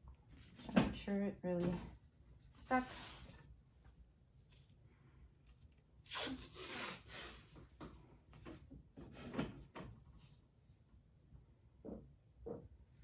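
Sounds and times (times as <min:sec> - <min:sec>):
tape ripping off roll: 0:06.0 - 0:07.5.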